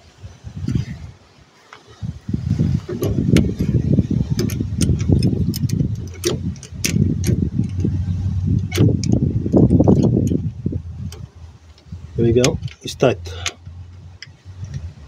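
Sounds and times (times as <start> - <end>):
steady low rumble: 0.0 - 15.0
spanner clicking on metal: 3.3 - 11.8, 12.4 - 14.9.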